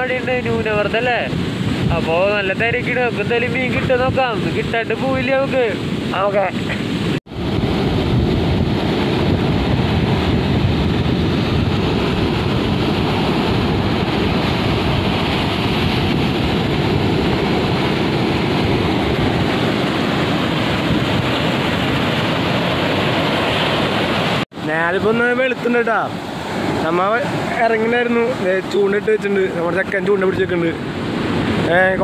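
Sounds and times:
wind buffeting microphone: 0.0s - 24.4s
rough surf breaking on shore: 0.0s - 32.0s.

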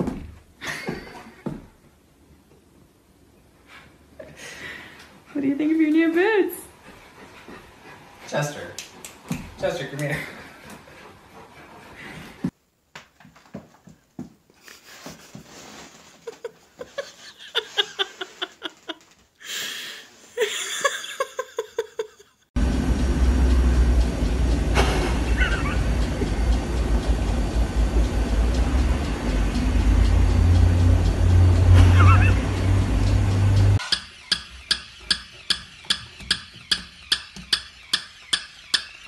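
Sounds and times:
loud low rumble with hiss: 22.6s - 33.8s.

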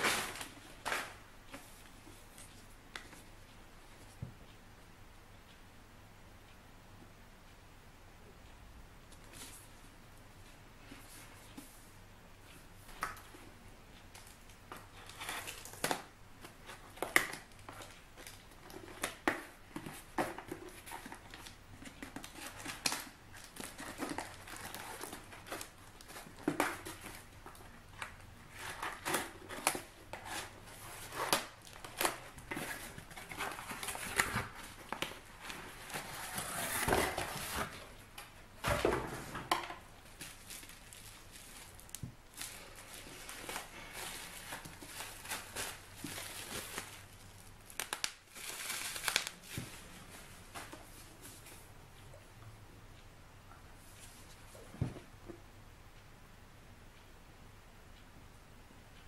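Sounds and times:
packaging crinkling: 15.0s - 37.9s, 40.0s - 49.9s.

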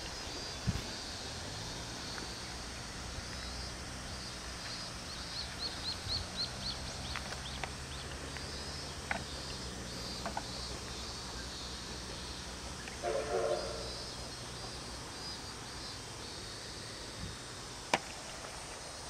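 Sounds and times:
bird chirping: 2.4s - 16.5s.

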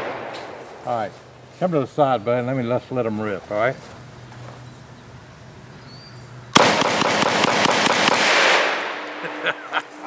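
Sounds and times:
rapid shotgun shots: 6.6s - 9.0s.

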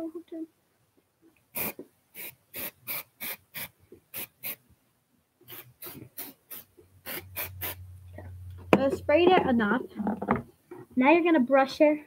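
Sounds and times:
aerosol spray puffs: 1.5s - 4.6s, 5.4s - 7.8s.

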